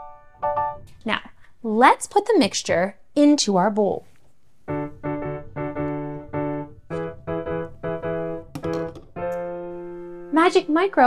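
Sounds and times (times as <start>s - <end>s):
keyboard tune with detached chords: 4.7s - 10.4s.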